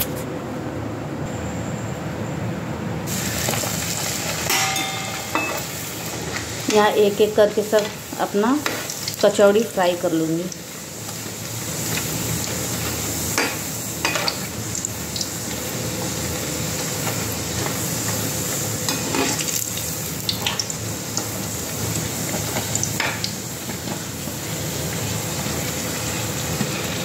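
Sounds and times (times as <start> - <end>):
deep-frying sizzle: 3.0 - 27.0
spoon tapping pan: 4.5 - 5.8.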